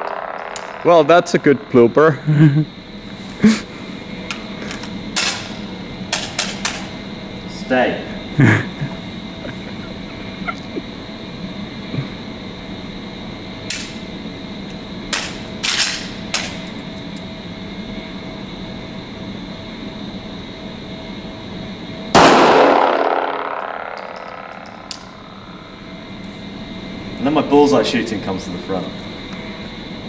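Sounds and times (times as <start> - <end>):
steady background hum: 0.0 - 30.0
pistol shot with echo: 22.2 - 24.9.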